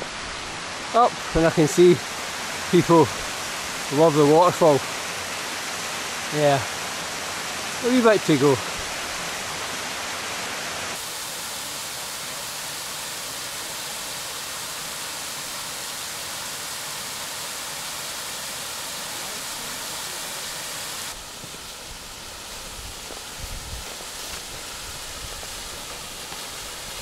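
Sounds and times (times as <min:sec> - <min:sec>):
waterfall rushing: 0:00.0 - 0:27.0.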